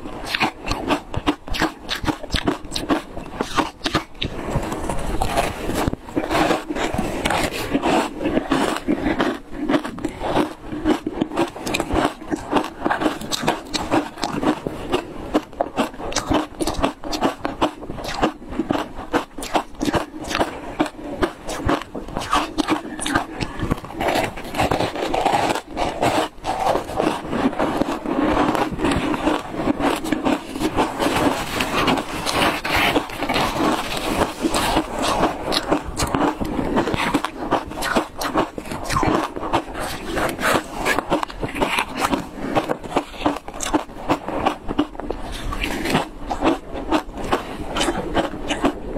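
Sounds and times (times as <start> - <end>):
crunching and chewing ice: 0.0 - 48.9.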